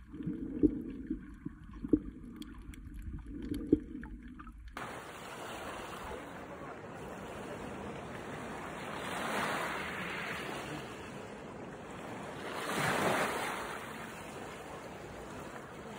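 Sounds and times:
sea waves washing ashore: 0:04.8 - 0:15.9.

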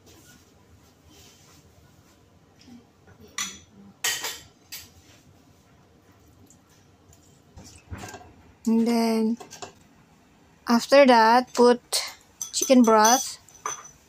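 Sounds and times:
kitchen utensils clinking: 0:11.4 - 0:14.0.

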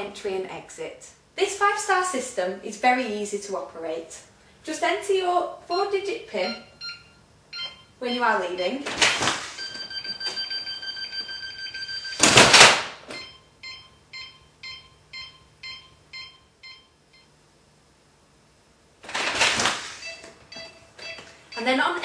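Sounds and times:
alarm keypad exit tone: 0:05.7 - 0:12.4, 0:13.1 - 0:17.3, 0:20.0 - 0:22.0
keypad beeping: 0:05.8 - 0:12.4, 0:20.0 - 0:22.0
front door opening: 0:08.8 - 0:10.8, 0:19.0 - 0:22.0.

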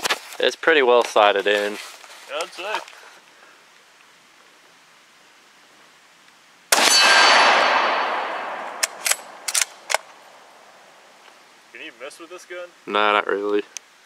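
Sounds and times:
rifle shot echoing: 0:06.7 - 0:10.9
rifle bolt clicks: 0:08.7 - 0:10.1.

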